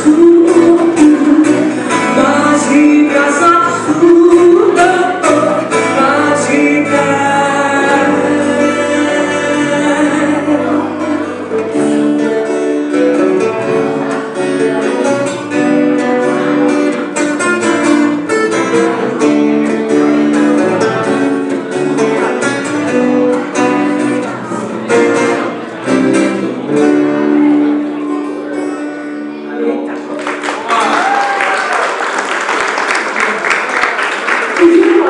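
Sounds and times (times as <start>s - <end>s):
woman singing: 0.0s - 11.3s
acoustic guitars strumming: 0.0s - 30.9s.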